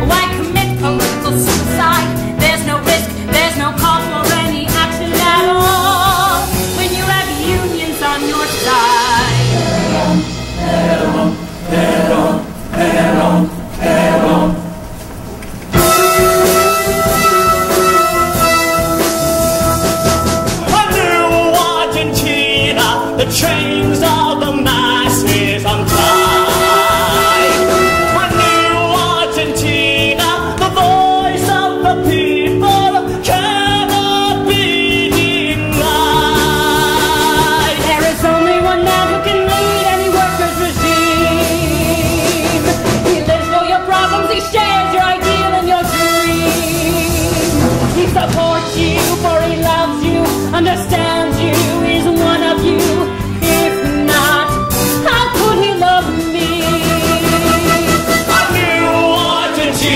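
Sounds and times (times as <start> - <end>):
instrumental accompaniment: 0.0 - 59.9
person singing with vibrato: 20.5 - 59.9.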